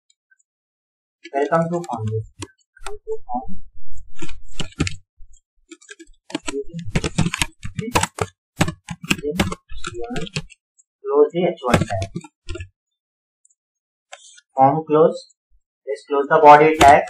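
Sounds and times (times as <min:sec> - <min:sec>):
computer keyboard typing: 0:01.3 - 0:03.2, 0:04.2 - 0:05.0, 0:05.7 - 0:10.6, 0:11.6 - 0:12.7, 0:16.7 - 0:17.0.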